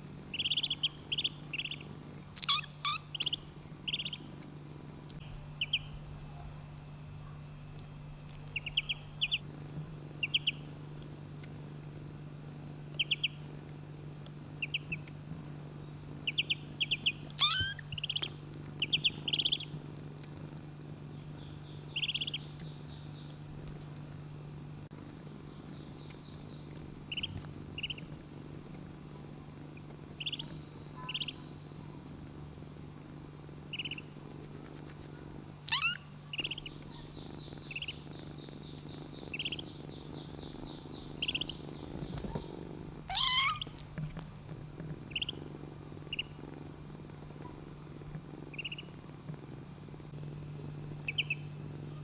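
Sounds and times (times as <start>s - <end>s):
kitten purring: 0.0s - 52.0s
duckling peeping: 0.3s - 4.3s, 5.6s - 6.0s, 8.4s - 9.4s, 10.2s - 10.7s, 12.9s - 13.4s, 14.6s - 15.2s, 16.2s - 19.7s, 21.4s - 23.3s, 26.0s - 28.1s, 30.2s - 31.5s, 33.7s - 34.1s, 35.7s - 42.5s, 43.1s - 43.8s, 45.1s - 45.4s, 46.1s - 46.4s, 48.5s - 48.9s, 50.6s - 52.0s
sweeping calls: 0.3s - 4.3s, 5.6s - 6.0s, 8.5s - 9.4s, 10.2s - 10.7s, 13.0s - 13.4s, 14.6s - 15.0s, 16.2s - 19.7s, 21.4s - 23.3s, 25.5s - 28.1s, 30.2s - 31.5s, 33.4s - 34.1s, 35.7s - 43.8s, 45.1s - 45.4s, 46.1s - 46.4s, 48.6s - 48.9s, 50.6s - 52.0s.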